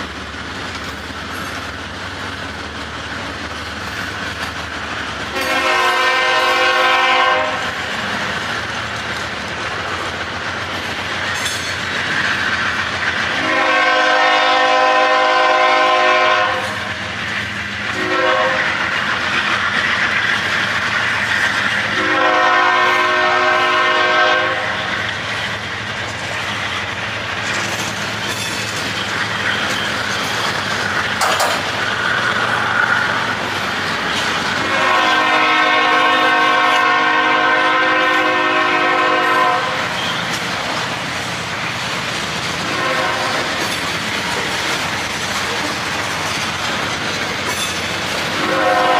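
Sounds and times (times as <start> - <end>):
freight cars clacking on rails: 0.0 - 48.9
locomotive air horn: 5.3 - 7.8, 13.4 - 16.9, 17.9 - 18.8, 21.9 - 24.9, 34.6 - 40.0, 42.6 - 43.6, 48.3 - 48.9.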